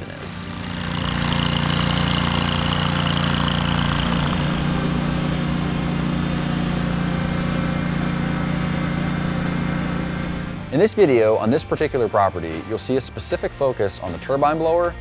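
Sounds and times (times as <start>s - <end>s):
tractor mower engine running: 0.0s - 11.6s.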